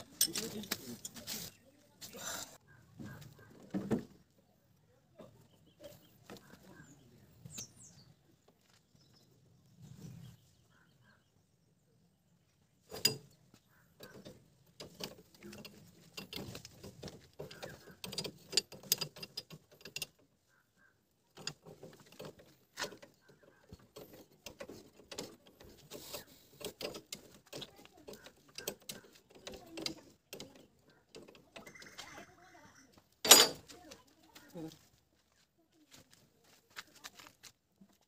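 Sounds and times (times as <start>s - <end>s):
hand tools clinking on metal: 0.0s - 1.2s, 12.9s - 13.3s, 33.2s - 33.7s.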